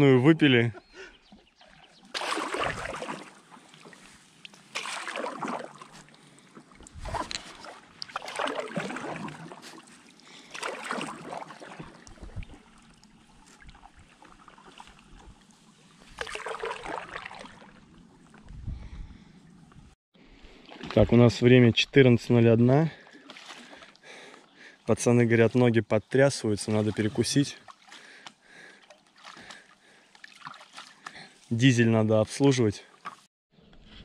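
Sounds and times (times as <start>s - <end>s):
paddle splashing in water: 1.3s - 18.5s, 20.4s - 21.2s, 23.0s - 24.3s, 26.7s - 31.5s.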